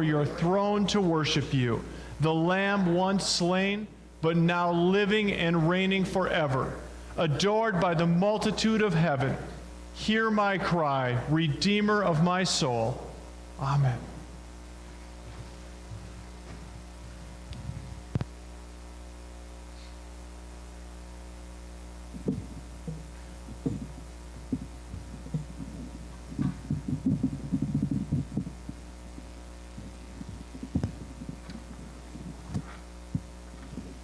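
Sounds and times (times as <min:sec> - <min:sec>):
low electrical hum: 0:00.0 - 0:34.0
muffled shuffling: 0:14.8 - 0:18.2, 0:22.2 - 0:34.0
soft low thumps: 0:22.0 - 0:34.0.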